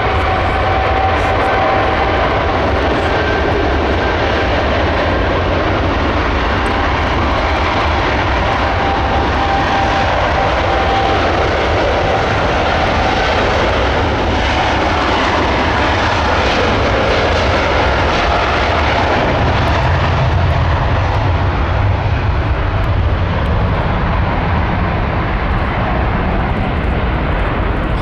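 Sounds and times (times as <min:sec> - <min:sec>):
jet engines roaring: 0:00.0 - 0:28.0.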